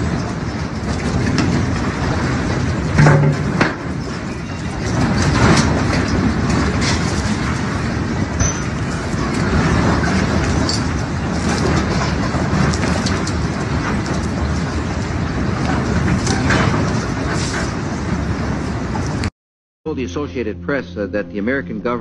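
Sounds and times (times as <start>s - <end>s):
loud low rumble: 19.9s - 22.0s.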